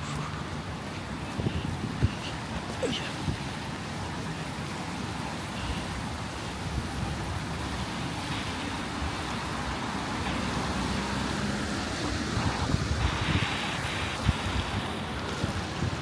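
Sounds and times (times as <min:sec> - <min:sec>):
traffic on wet road: 0:00.0 - 0:16.0
tyre hiss of passing vehicle: 0:04.6 - 0:15.9.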